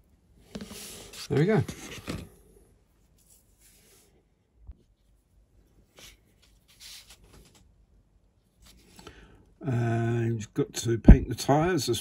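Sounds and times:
hands rubbing and scratching plastic: 0:00.5 - 0:02.3.

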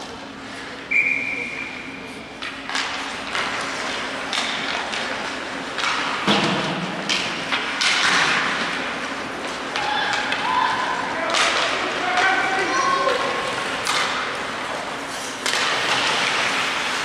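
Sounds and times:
knocks and thuds in an arena: 0:06.2 - 0:07.1.

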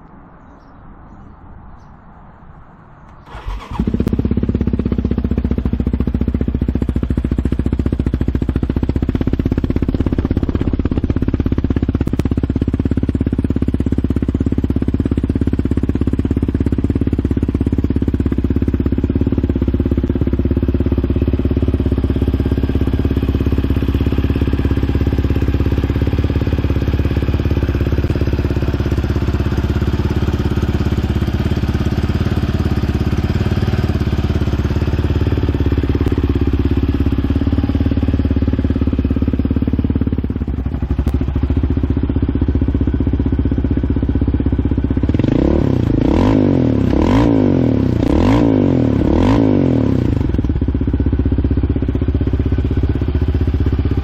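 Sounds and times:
engine starting and idling: 0:03.1 - 0:04.5.

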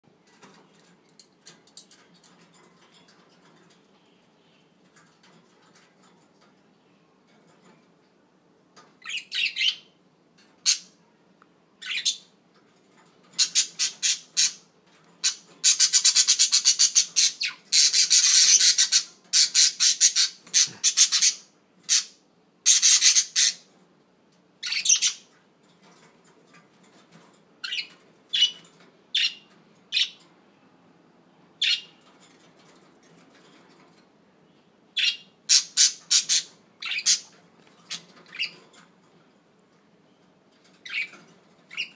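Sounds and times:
budgerigars chirping and squawking: 0:09.0 - 0:10.0, 0:11.8 - 0:12.3, 0:13.4 - 0:23.7, 0:24.6 - 0:25.3, 0:27.6 - 0:30.2, 0:31.6 - 0:32.0, 0:35.0 - 0:38.6, 0:40.8 - 0:41.9.

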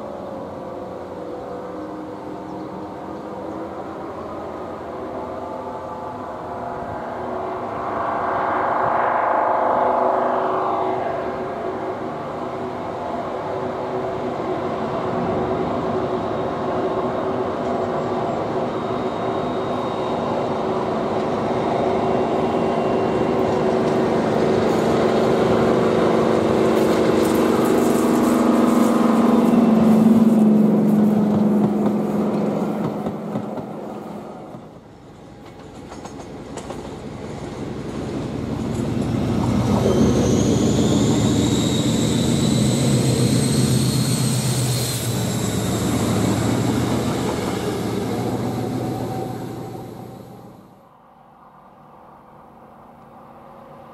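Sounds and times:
diesel locomotive passing: 0:00.0 - 0:53.9
high whistle: 0:06.8 - 0:13.0, 0:39.8 - 0:46.9.

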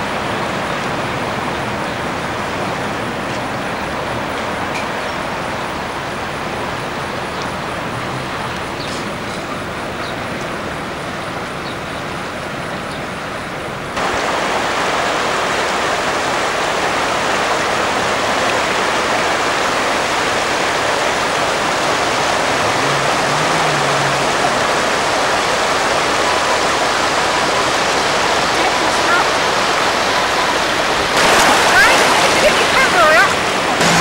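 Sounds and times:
floodwater rushing: 0:00.0 - 0:34.0.

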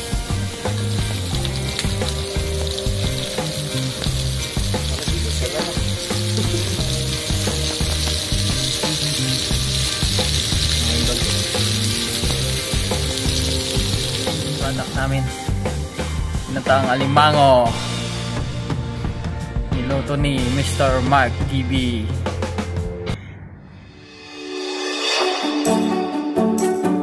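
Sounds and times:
sauce sizzling and bubbling in pan: 0:00.0 - 0:16.5
background music: 0:00.0 - 0:23.2, 0:23.8 - 0:27.0.

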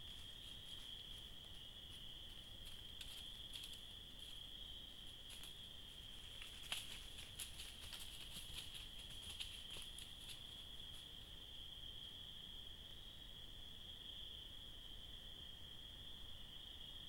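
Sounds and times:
crickets trilling: 0:00.0 - 0:17.0.

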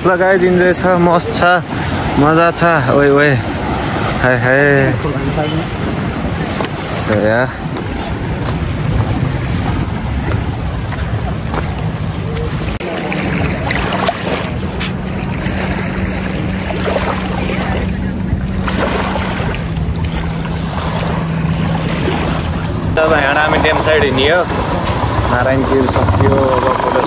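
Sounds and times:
wind noise on microphone: 0:05.7 - 0:27.0
motorcycle engine: 0:07.7 - 0:27.0.

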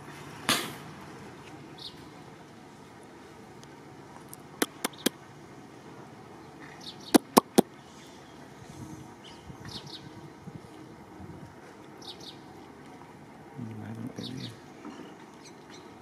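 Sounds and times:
faint outdoor background: 0:00.0 - 0:16.0
sharp clicks: 0:04.6 - 0:05.1, 0:07.2 - 0:07.6.

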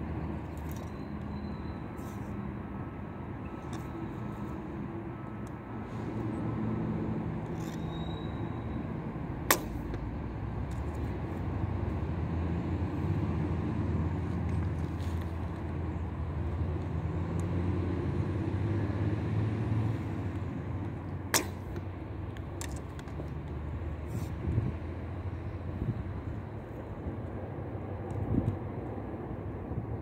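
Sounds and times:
bowstring snapping: 0:09.4 - 0:10.1, 0:20.3 - 0:23.2.

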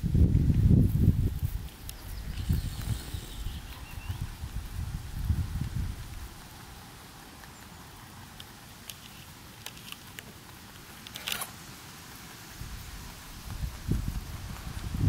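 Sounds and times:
rabbit chewing grass: 0:00.0 - 0:15.0.

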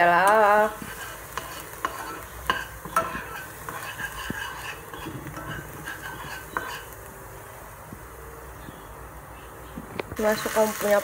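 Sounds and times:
faint sizzle: 0:00.0 - 0:11.0
metal spoon scraping a pan: 0:00.2 - 0:07.0.

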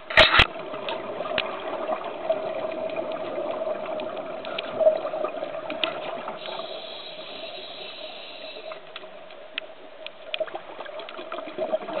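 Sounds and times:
underwater hum: 0:00.0 - 0:12.0
high hiss: 0:06.4 - 0:09.0.

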